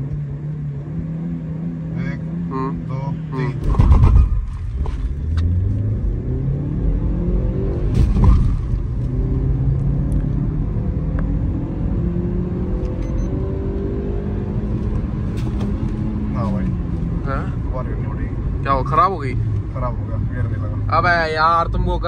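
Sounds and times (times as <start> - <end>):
car engine accelerating: 0.0 - 22.0
gear change knock: 3.6 - 5.8, 7.8 - 9.2, 14.7 - 16.1.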